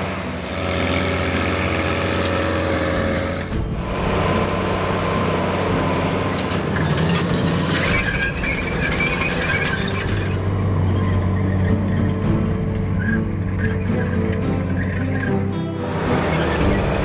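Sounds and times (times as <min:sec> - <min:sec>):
tractor engine running under load: 0:00.0 - 0:17.0
high metallic squeal: 0:06.5 - 0:17.0.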